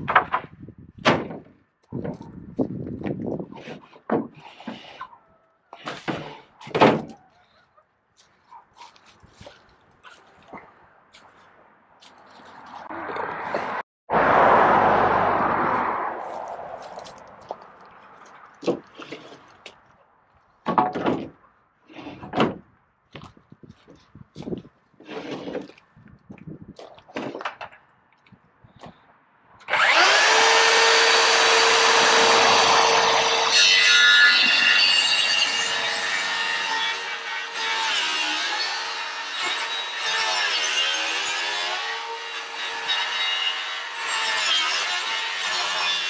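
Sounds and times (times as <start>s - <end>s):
wooden boards clattering: 0.0s - 2.3s, 5.8s - 7.3s, 20.6s - 21.4s, 22.0s - 22.6s
circular saw cutting wood: 29.6s - 46.0s.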